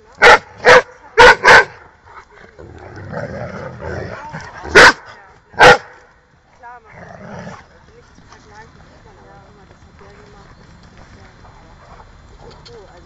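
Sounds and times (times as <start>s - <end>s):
dogs barking: 0.2s - 1.8s, 4.7s - 6.0s.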